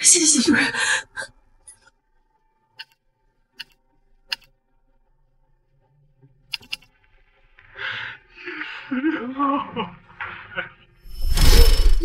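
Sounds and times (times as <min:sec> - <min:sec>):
laptop clicks: 0:06.5 - 0:06.9.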